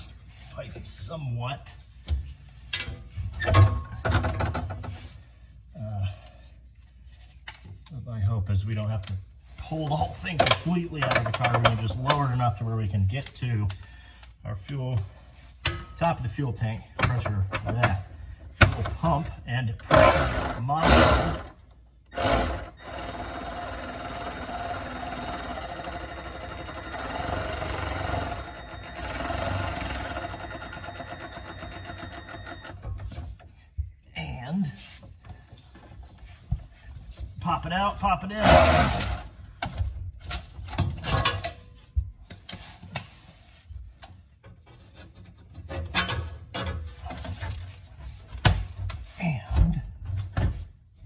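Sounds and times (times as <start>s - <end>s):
power tool rattling on bolt: 19.9s - 32.7s, 38.4s - 39.3s.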